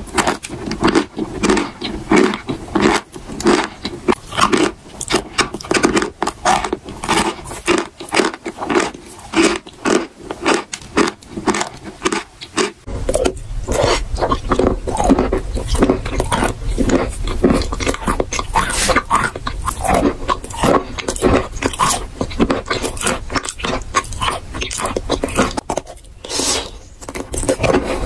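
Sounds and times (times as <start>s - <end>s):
chalk being bitten and chewed: 0.0s - 28.0s
low hum: 12.8s - 22.4s.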